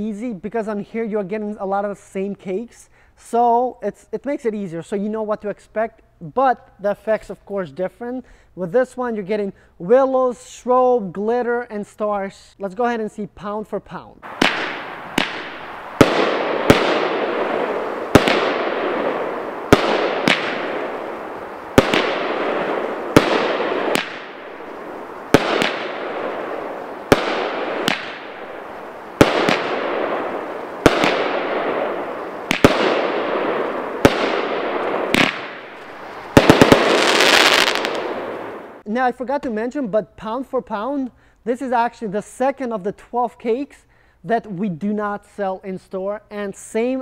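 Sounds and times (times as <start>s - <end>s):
firework reports: 13.6s - 39.8s
firework crackling hiss: 14.2s - 38.8s.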